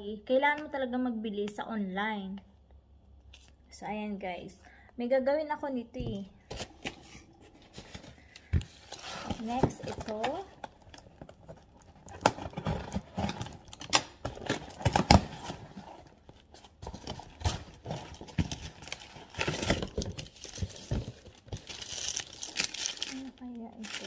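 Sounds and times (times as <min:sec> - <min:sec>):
plastic packaging crinkling: 0:06.5 - 0:24.0.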